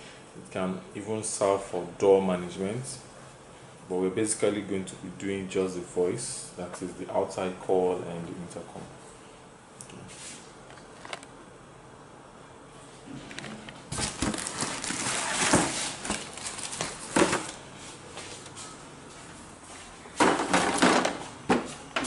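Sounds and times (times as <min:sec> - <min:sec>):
cardboard box scraping and rustling: 0:13.4 - 0:17.2.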